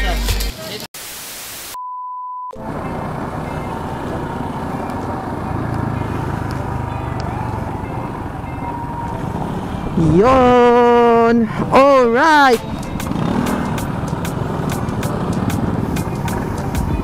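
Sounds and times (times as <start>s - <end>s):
burst of static: 1.0s - 1.8s
short steady beep: 1.8s - 2.6s
motorcycle engine rumble: 2.6s - 11.8s, 12.6s - 17.0s.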